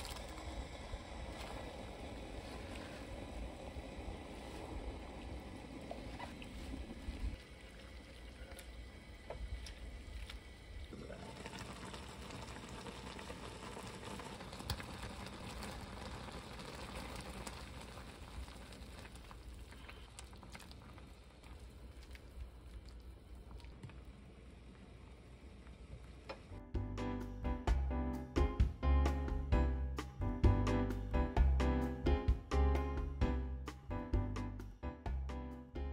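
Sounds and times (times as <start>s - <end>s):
soup bubbling in a pot: 0.0s - 26.2s.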